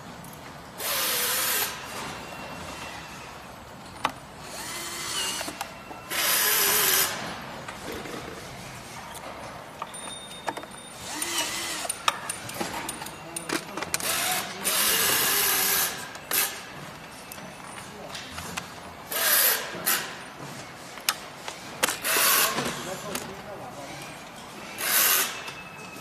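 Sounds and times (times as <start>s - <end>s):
cordless drill running: 4.5s - 7.2s.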